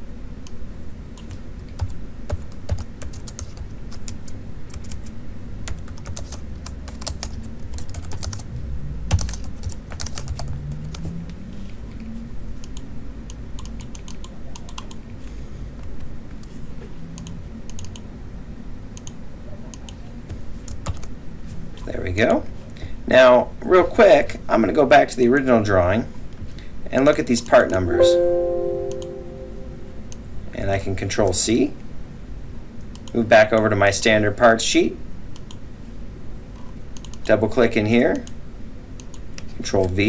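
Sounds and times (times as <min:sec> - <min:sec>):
typing on computer keyboard: 0:01.2 - 0:05.1, 0:05.7 - 0:08.4, 0:09.1 - 0:11.0, 0:13.6 - 0:15.0, 0:20.7 - 0:21.2.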